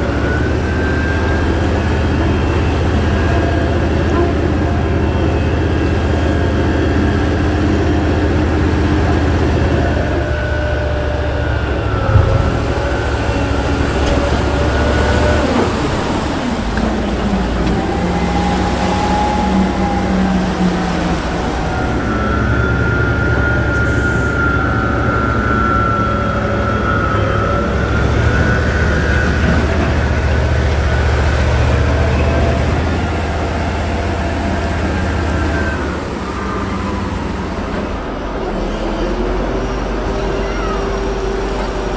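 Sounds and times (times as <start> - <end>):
heavy diesel engine running: 0.0 - 41.9
water churning around hull: 0.0 - 41.9.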